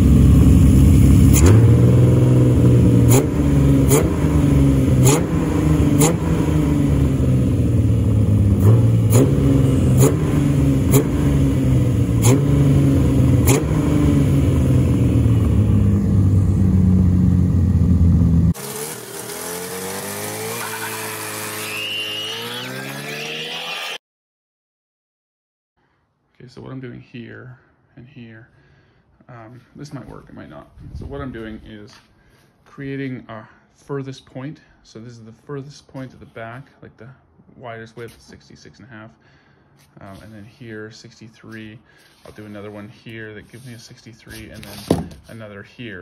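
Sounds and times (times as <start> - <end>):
car engine pulling through gears: 0.0 - 24.0
engine running and revving: 0.0 - 24.0.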